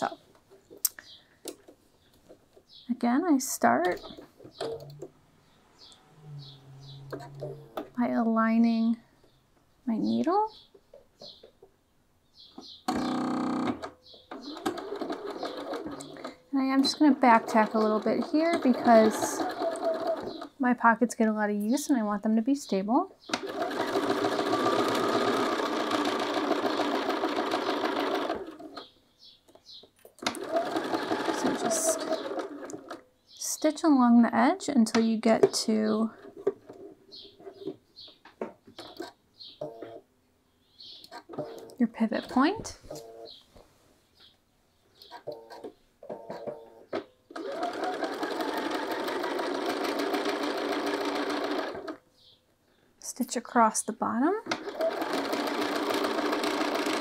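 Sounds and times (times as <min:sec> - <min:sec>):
sewing machine stitching: 0:12.9 - 0:20.5, 0:23.3 - 0:28.8, 0:30.2 - 0:33.0, 0:47.3 - 0:52.0, 0:54.5 - 0:57.0.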